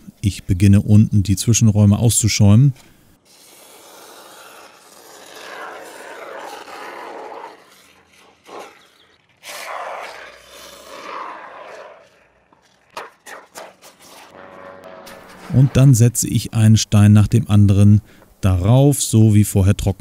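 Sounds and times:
aerosol can hissing: 3.3s - 5.6s.

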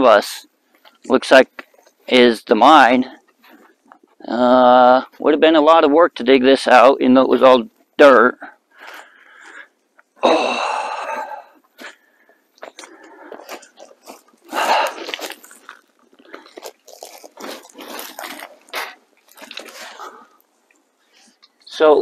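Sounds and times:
footsteps on gravel: 12.6s - 20.4s.

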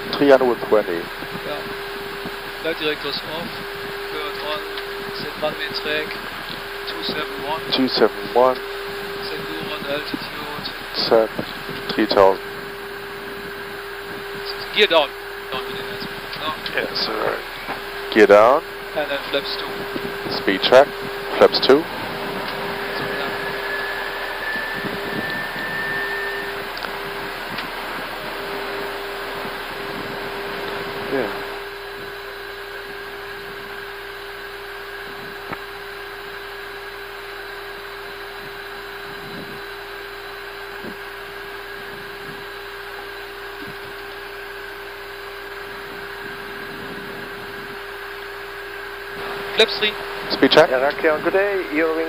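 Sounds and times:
rush of airflow and air conditioning: 0.0s - 37.5s
constant hum: 0.0s - 52.0s.

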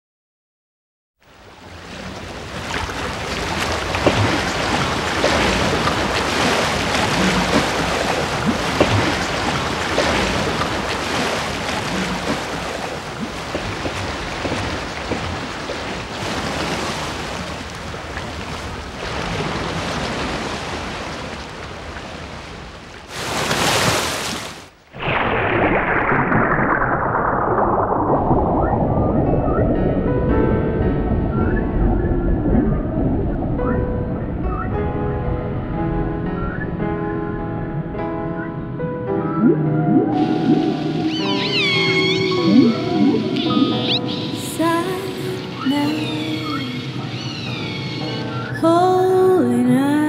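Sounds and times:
rush of water: 1.2s - 30.1s, 39.4s - 50.0s
ocean waves washing: 1.2s - 50.0s.

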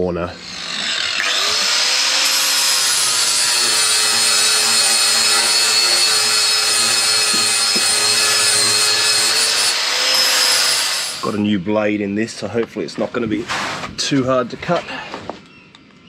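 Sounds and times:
angle grinder grinding wood: 0.0s - 11.5s.

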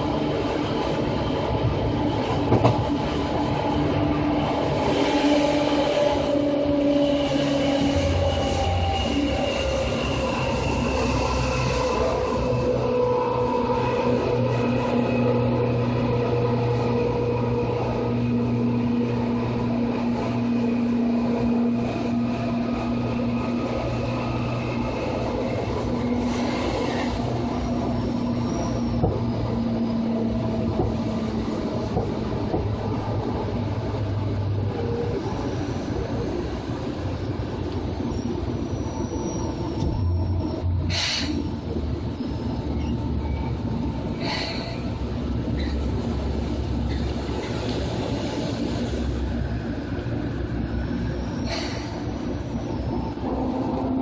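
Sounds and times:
high wheel squeals: 5.4s - 15.1s, 23.2s - 30.2s, 38.0s - 41.5s, 51.1s - 53.1s.

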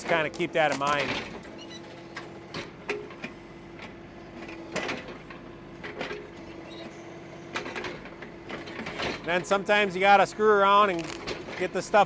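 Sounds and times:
tractor diesel engine whine: 0.0s - 12.0s
roots snapping: 10.9s - 11.3s.

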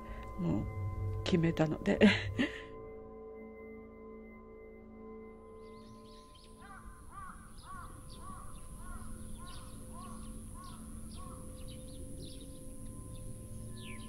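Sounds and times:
faint steady drone: 0.0s - 14.0s
birds calling: 5.4s - 14.0s.

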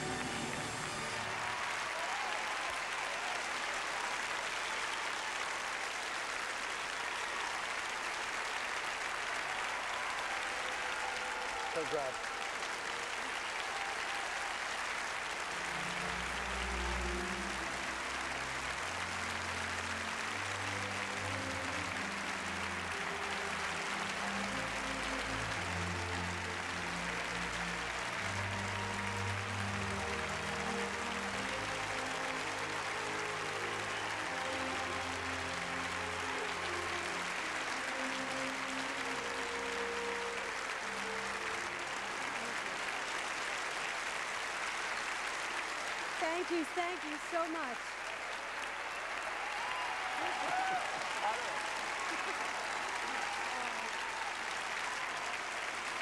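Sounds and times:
music with long held notes: 0.0s - 1.7s, 10.0s - 46.1s
audience applauding: 0.0s - 56.0s.

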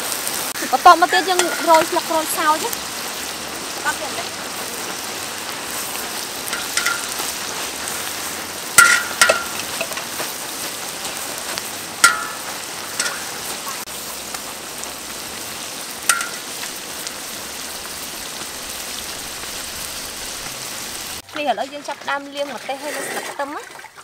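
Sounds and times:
hot oil sizzling in a wok: 0.0s - 22.6s
sharp pops: 0.5s - 2.8s, 4.6s - 17.2s.

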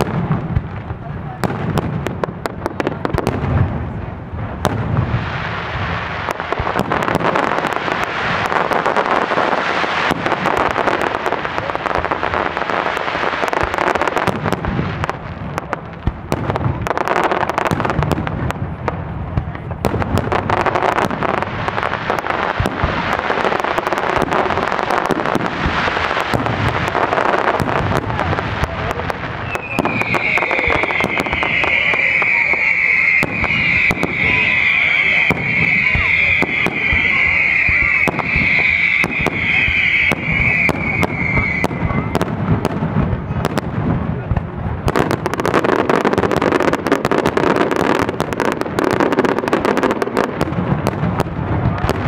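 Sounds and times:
fireworks crackling and banging: 0.0s - 52.0s
firework whistle: 20.4s - 42.6s.

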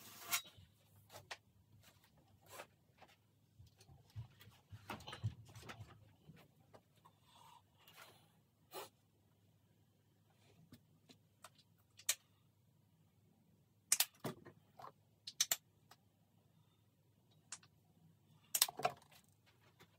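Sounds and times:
objects being handled clicking: 15.3s - 16.0s.

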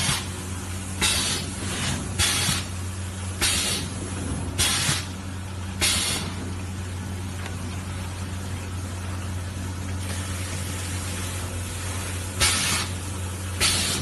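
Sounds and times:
machine electrical hum: 0.0s - 14.0s.

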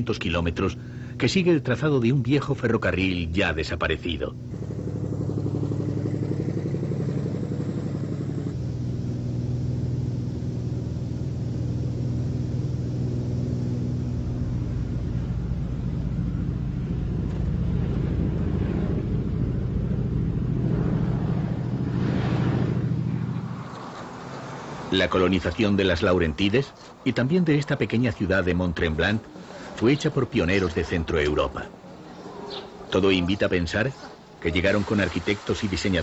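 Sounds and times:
propeller engine droning: 0.0s - 34.5s
rushing noise: 16.8s - 25.5s.

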